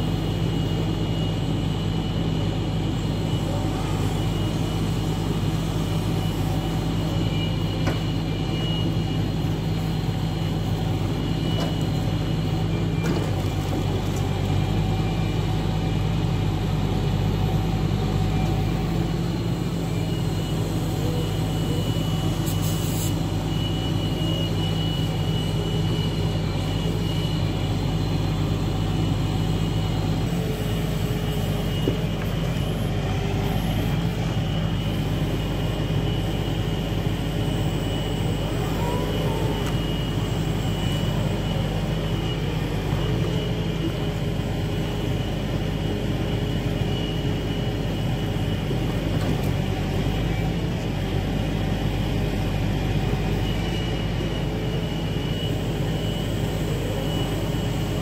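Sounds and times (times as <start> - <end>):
truck engine running: 0.0 - 58.0
high whine: 14.3 - 58.0.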